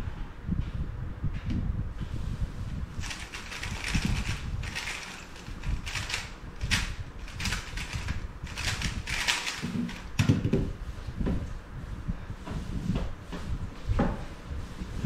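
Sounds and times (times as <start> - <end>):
plastic puzzle cube clicking: 3.0 - 10.1.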